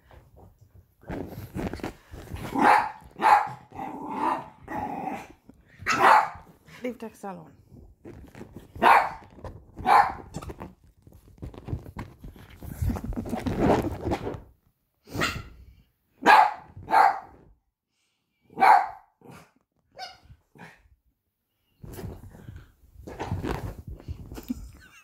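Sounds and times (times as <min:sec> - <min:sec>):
dogs scuffling and grumbling: 0:00.1 - 0:06.8, 0:07.6 - 0:14.5, 0:21.8 - 0:25.0
dogs barking: 0:02.6 - 0:04.4, 0:05.8 - 0:06.4, 0:16.2 - 0:17.3, 0:18.6 - 0:19.0
dog yipping: 0:05.8 - 0:06.4, 0:09.8 - 0:10.6, 0:19.9 - 0:20.3.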